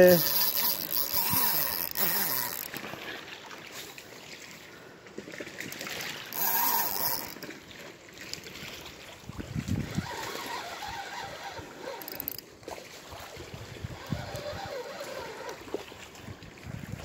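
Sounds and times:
river water washing: 0.0 - 16.7
wind buffeting microphone: 9.2 - 11.5, 16.3 - 17.0.

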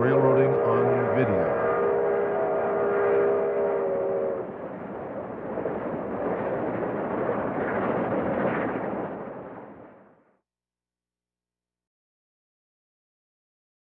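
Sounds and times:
steam locomotive whistle chord: 0.0 - 4.5
steam locomotive running: 0.0 - 5.1.

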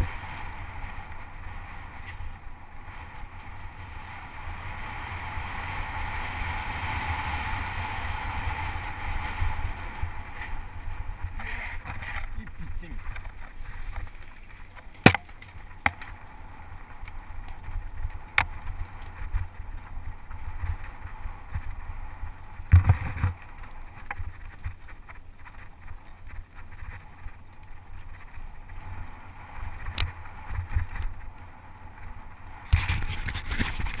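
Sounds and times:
bike tyres rumbling on dirt: 0.0 - 34.0
bike knocking over bumps: 11.3 - 16.2, 22.6 - 25.2.

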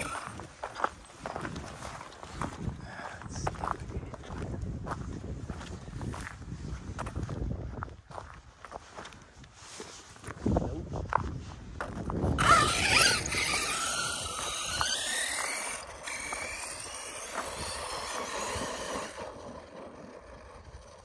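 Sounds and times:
rc truck motor whining: 0.0 - 0.5, 12.4 - 21.0.

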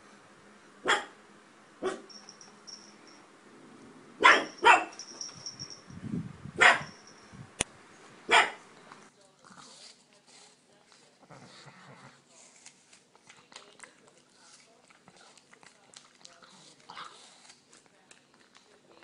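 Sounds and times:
dog barking: 0.8 - 1.2, 1.8 - 2.2, 4.2 - 5.1, 6.6 - 7.0, 8.3 - 8.6.

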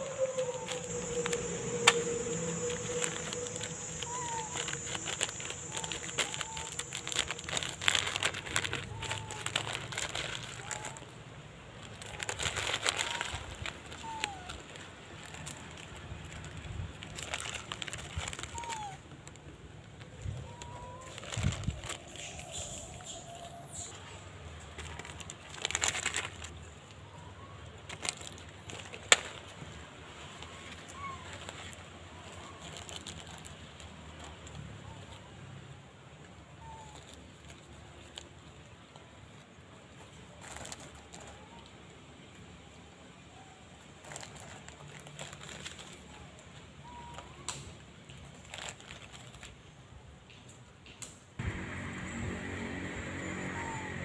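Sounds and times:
plastic wrapper crinkling: 0.0 - 24.0, 24.6 - 35.2, 40.3 - 41.7, 44.0 - 49.8
crackling rustle: 0.0 - 54.0
faint bird chirps: 21.8 - 24.3.

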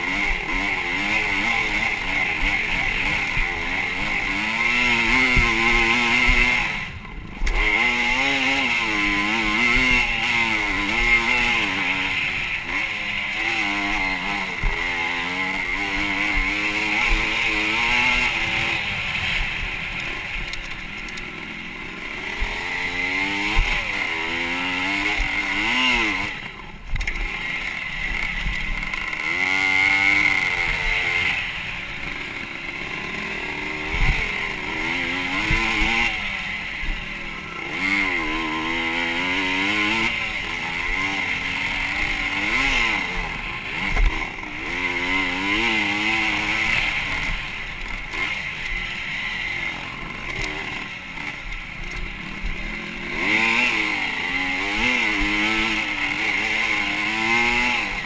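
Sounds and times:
motorcycle engine revving: 0.0 - 58.0.

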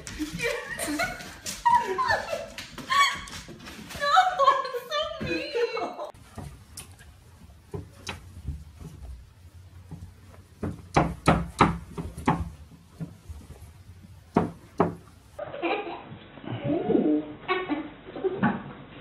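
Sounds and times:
animals knocking on window sill: 14.3 - 15.1.

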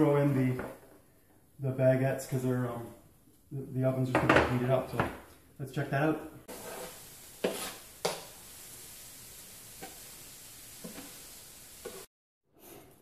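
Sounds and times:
food sizzling in a frying pan: 6.4 - 12.1.

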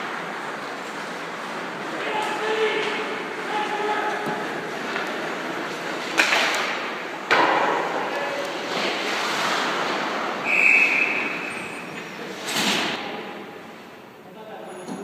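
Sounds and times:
sharp knocks in a hall: 6.2 - 8.3
short high whistle blast: 10.4 - 11.8.

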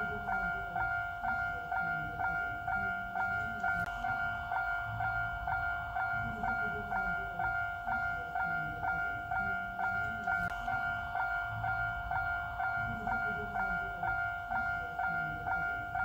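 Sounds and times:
level crossing warning bell ringing: 0.0 - 16.0.

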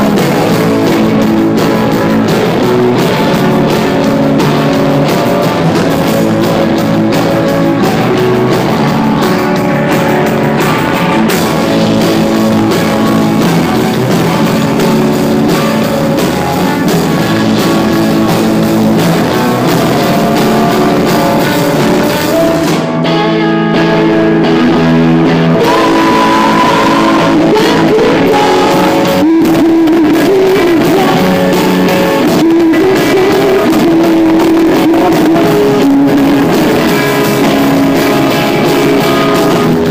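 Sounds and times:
drum kit: 0.0 - 39.9
electric guitar chords: 0.0 - 39.9
person singing: 25.4 - 39.9.

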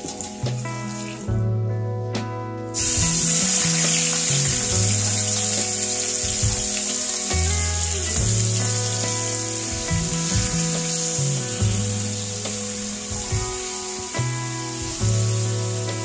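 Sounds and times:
background music: 0.0 - 16.0
chicken sizzling in oil: 2.8 - 16.0.

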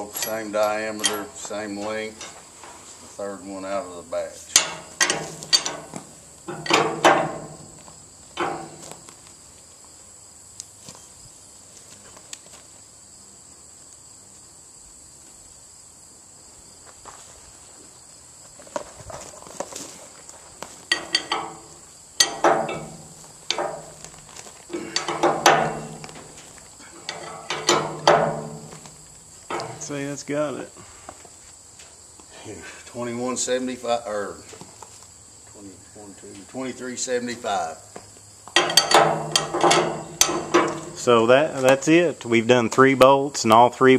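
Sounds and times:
insects droning: 0.0 - 43.9.

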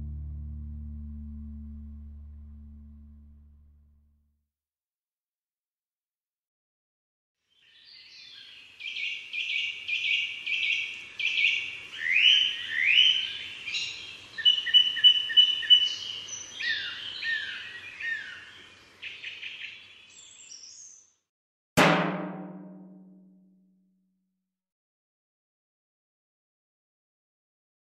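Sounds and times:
birdsong chirps and whistles: 7.6 - 21.1.

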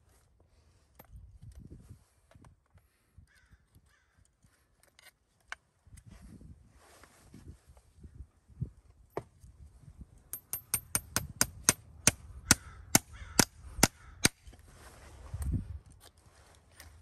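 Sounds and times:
hammer striking horseshoe nails: 10.3 - 14.4.

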